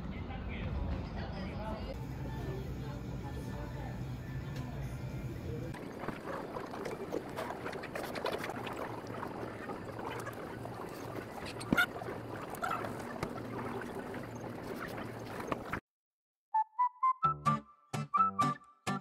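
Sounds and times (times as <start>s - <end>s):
noodle slurping: 5.8s - 15.8s.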